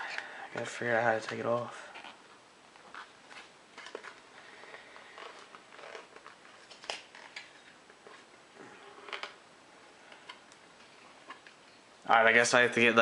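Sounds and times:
hands clicking and rustling packaging: 2.8s - 8.3s.

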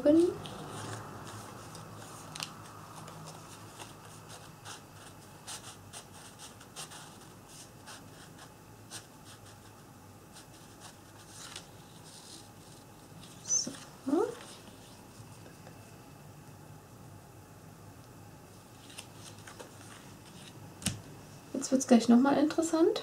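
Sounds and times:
paper rustling and ticking: 0.2s - 7.2s, 10.5s - 12.4s, 18.8s - 21.0s.

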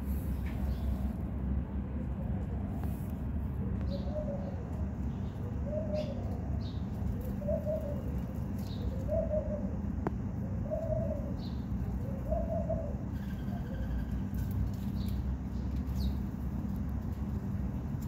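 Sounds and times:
steady low rumble: 0.0s - 18.0s
dove cooing: 3.6s - 14.6s.

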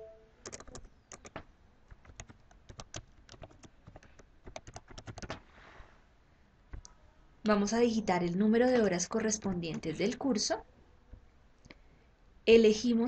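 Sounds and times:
computer keyboard typing: 0.4s - 5.4s, 9.3s - 10.2s.

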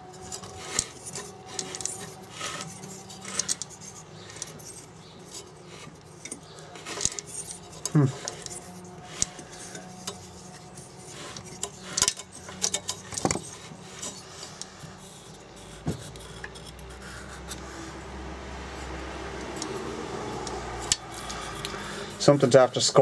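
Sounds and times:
finger rubbing inside metal cylinder: 18.7s - 22.5s.

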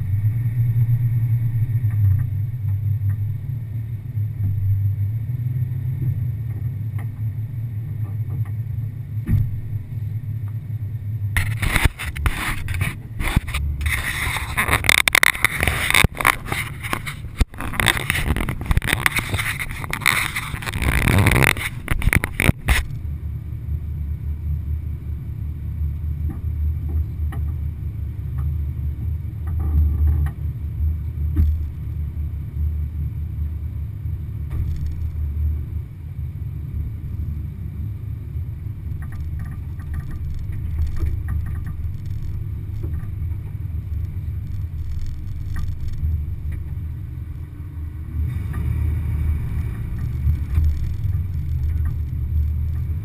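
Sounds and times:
vehicle engine idling: 0.0s - 53.0s
camera rubbing and knocking: 11.4s - 23.0s, 34.5s - 35.2s, 38.9s - 46.8s, 49.7s - 53.0s.

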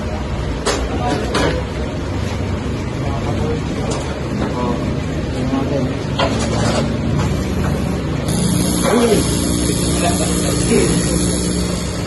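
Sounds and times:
low mechanical hum: 0.0s - 12.0s
gas hissing: 7.4s - 12.0s.

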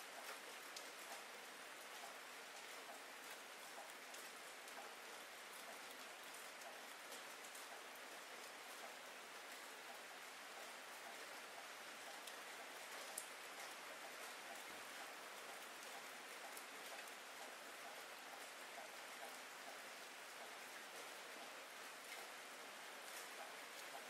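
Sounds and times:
steady rain falling: 0.0s - 24.0s.

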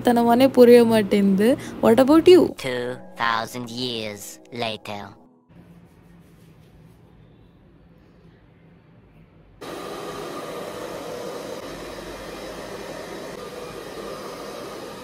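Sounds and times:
hair dryer blowing: 9.6s - 15.0s.

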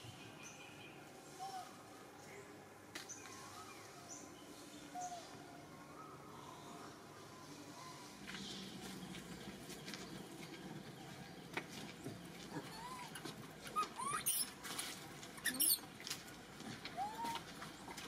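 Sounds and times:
baby monkey squeaking: 13.8s - 14.6s, 15.4s - 15.8s.

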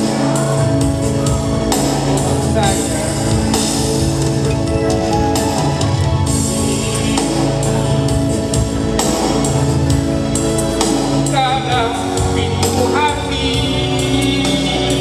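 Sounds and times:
man singing into microphone: 0.0s - 3.9s, 6.4s - 8.7s, 11.2s - 15.0s
backing music with steady beat: 0.0s - 15.0s.

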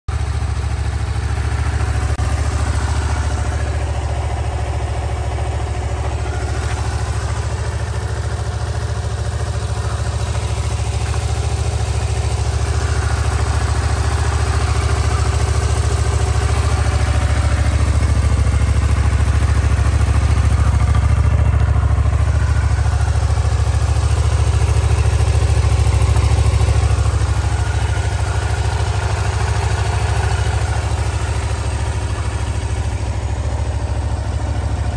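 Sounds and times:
motorcycle engine idling: 0.1s - 34.9s.

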